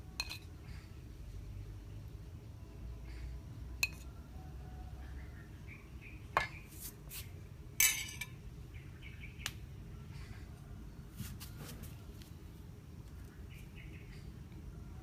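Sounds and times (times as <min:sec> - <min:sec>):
utensils clinking on dishes: 0:07.8 - 0:08.4.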